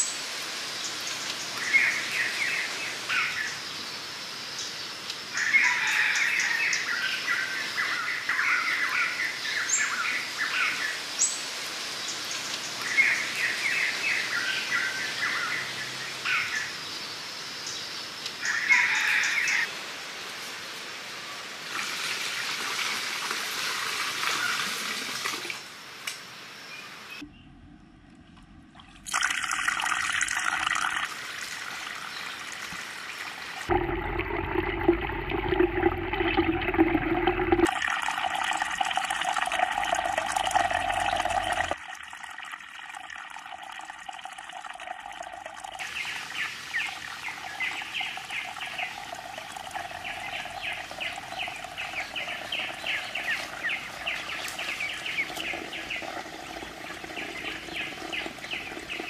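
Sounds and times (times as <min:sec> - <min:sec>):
water splashing from fountain: 0:21.6 - 0:25.7, 0:28.8 - 0:59.0.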